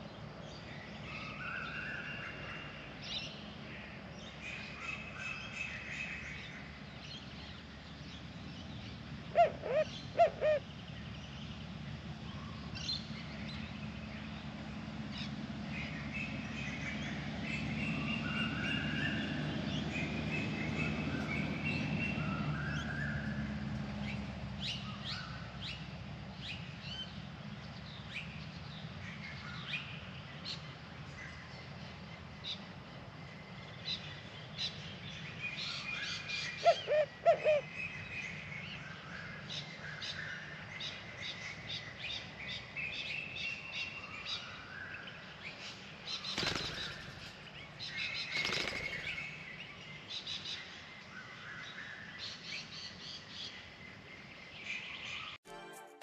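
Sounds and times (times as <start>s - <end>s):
small birds chirping: 37.9s - 55.4s
dove wings flapping: 46.2s - 47.4s, 48.3s - 49.2s.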